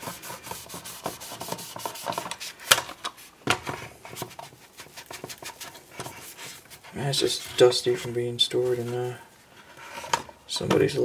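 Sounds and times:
towel rubbing on plastic: 0.0s - 2.6s.

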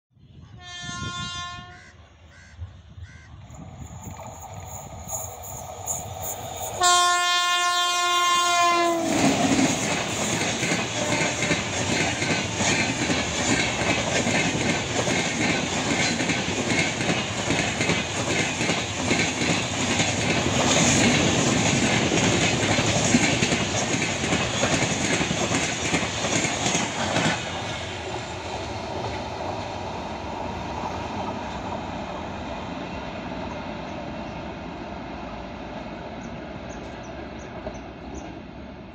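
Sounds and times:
steady train rumble: 0.2s - 38.9s
train horn blast: 0.4s - 2.0s, 6.8s - 9.4s, 11.0s - 11.6s
train rushing past: 3.4s - 38.9s.

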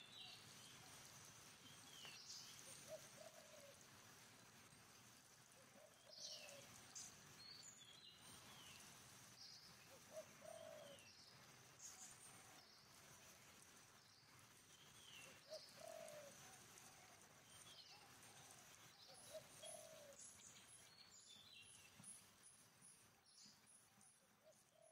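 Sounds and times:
bird cooing: 2.8s - 3.8s, 5.6s - 6.7s, 9.9s - 11.1s, 15.3s - 17.2s, 17.9s - 20.2s.

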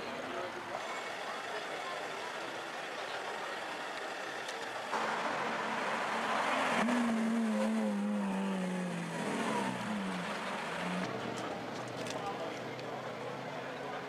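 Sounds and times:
sports car engine pulling away: 4.9s - 12.1s.

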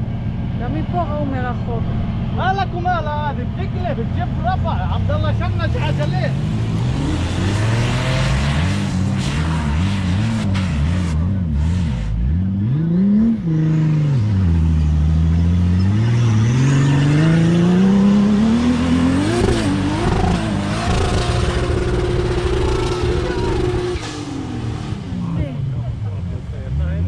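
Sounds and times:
suv engine revving hard: 5.5s - 25.6s.

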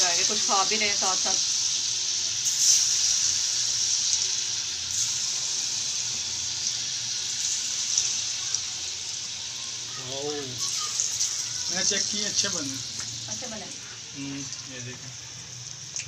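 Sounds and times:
batter crackling in oil: 0.0s - 16.0s
food frying in hot oil: 0.0s - 16.0s.

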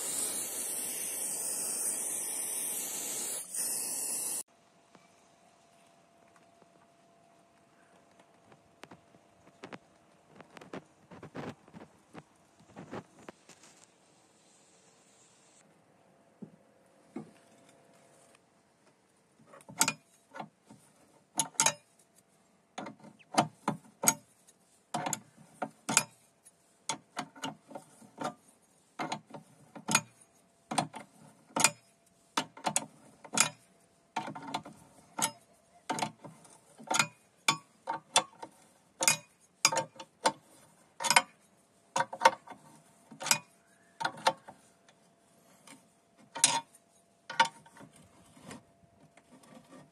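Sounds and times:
spanner clicking on a nut: 36.8s - 40.4s.

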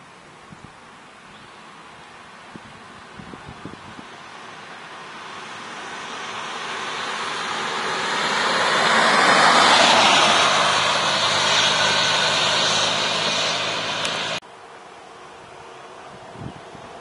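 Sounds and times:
car driving past: 4.2s - 14.4s.

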